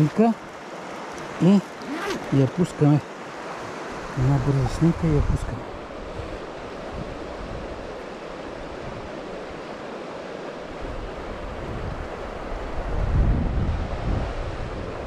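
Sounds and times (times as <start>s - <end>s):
shallow river flowing over stones: 0.0s - 4.9s
wind buffeting microphone: 3.9s - 9.8s, 10.6s - 15.0s.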